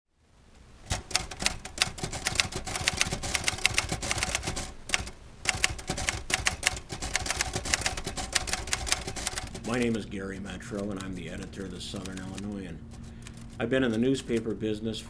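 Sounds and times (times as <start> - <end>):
typewriter keys clacking: 0.9 - 14.6.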